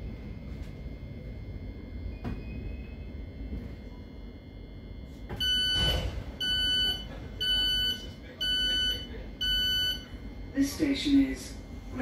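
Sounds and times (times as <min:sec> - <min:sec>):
train carriage rumble: 0:00.0 - 0:04.4, 0:05.0 - 0:12.0
door warning beeps: 0:02.0 - 0:03.1, 0:05.2 - 0:10.1.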